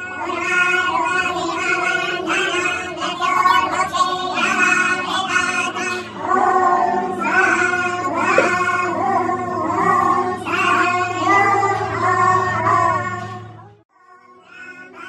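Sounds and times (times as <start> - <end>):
person singing: 0.0 - 13.4.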